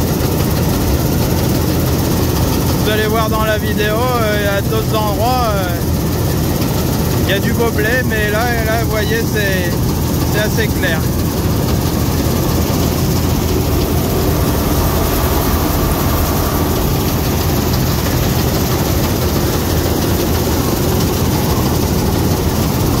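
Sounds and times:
combine harvester running: 0:00.0 - 0:23.0.

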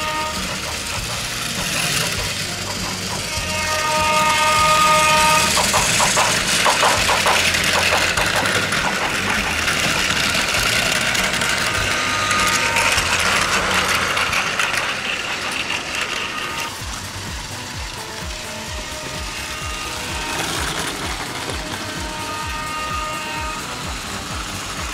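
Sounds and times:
toy train motors whirring: 0:00.0 - 0:24.9.

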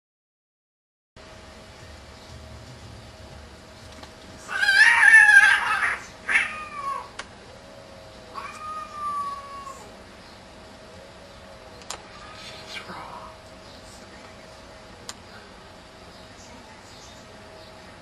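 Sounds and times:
cats screeching and yowling: 0:04.4 - 0:07.2, 0:08.3 - 0:10.0, 0:12.0 - 0:13.3.

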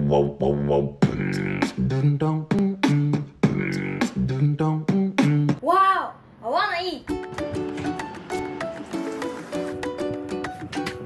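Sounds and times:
background music with quick beat: 0:01.0 - 0:05.6, 0:07.1 - 0:11.0.

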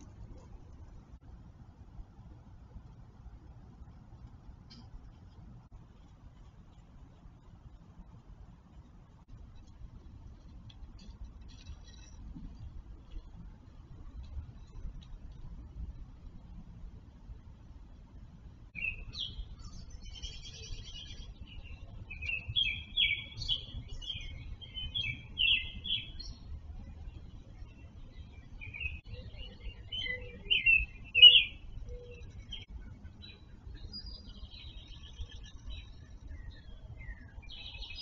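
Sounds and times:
songbirds chirping and warbling: 0:18.6 - 0:38.0.

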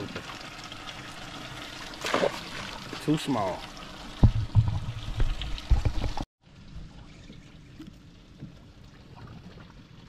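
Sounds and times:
water lapping against boat hull: 0:00.0 - 0:06.2.

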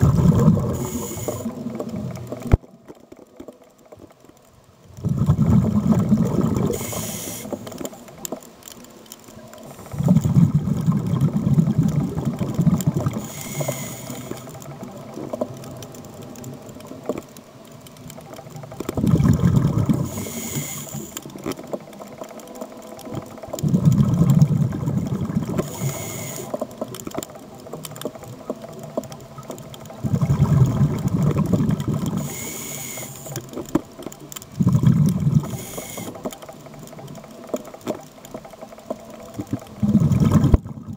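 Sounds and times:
exhaled bubbles bursting: 0:00.0 - 0:02.8, 0:05.0 - 0:07.2, 0:09.8 - 0:13.4, 0:18.4 - 0:20.4, 0:23.1 - 0:25.8, 0:28.1 - 0:32.4, 0:34.5 - 0:35.7, 0:39.3 - 0:40.9
hissing regulator inhalation: 0:00.1 - 0:01.9, 0:06.4 - 0:07.8, 0:13.0 - 0:14.6, 0:19.2 - 0:21.4, 0:25.0 - 0:26.6, 0:30.4 - 0:33.4, 0:34.6 - 0:36.3.

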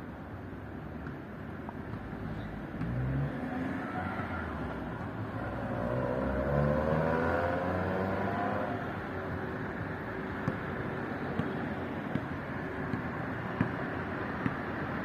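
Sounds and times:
street noise: 0:00.0 - 0:15.0
vehicle engine accelerating past: 0:05.4 - 0:08.8.

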